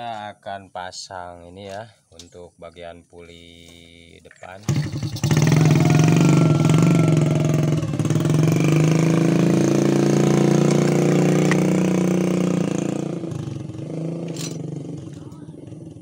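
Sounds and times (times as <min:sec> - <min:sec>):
small engine running: 0:04.6 - 0:16.0.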